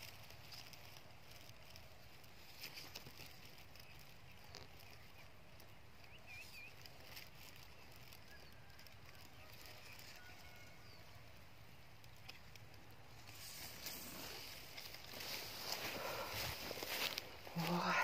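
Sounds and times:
faint chirp: 3.6 - 11.4
faint clicks: 11.7 - 14.0.

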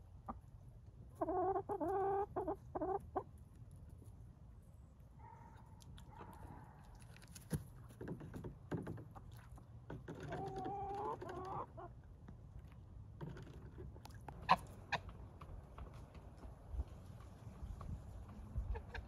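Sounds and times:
chickens clucking: 1.1 - 3.3, 10.2 - 12.0, 18.6 - 19.0.

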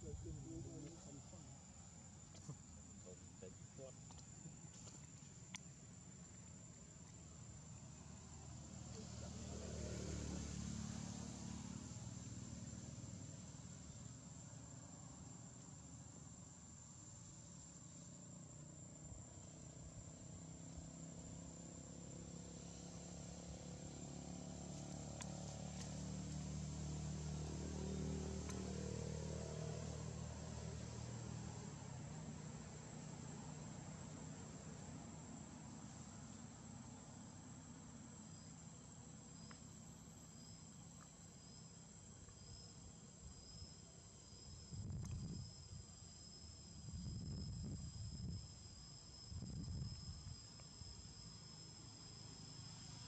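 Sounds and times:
high insect whine: 0.0 - 53.0
insect chirping: 0.0 - 53.0
low engine-like hum: 0.0 - 53.0
faint ticks: 4.0 - 7.2, 24.7 - 26.0, 28.4 - 28.6, 39.4 - 39.7.

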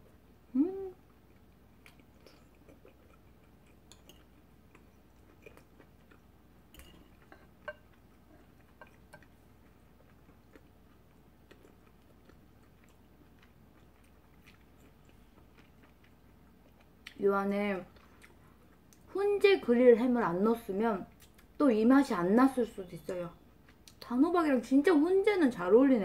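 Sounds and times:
faint chewing: 0.0 - 19.1.

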